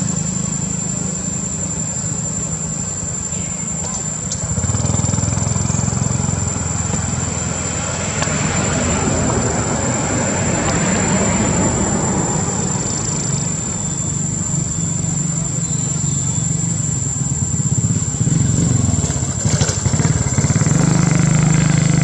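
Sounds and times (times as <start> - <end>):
vehicle engine running: 0.0 - 22.0
vehicle passing: 4.5 - 14.7.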